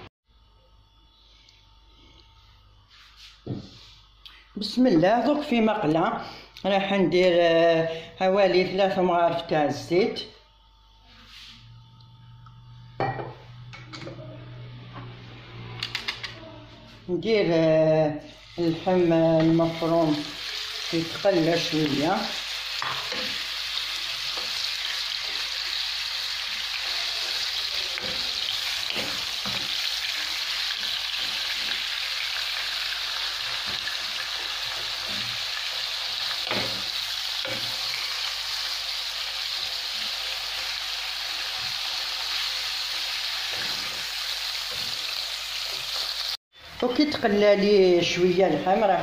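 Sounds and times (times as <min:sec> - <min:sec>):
meat sizzling in a frying pan: 0:18.4 - 0:46.4.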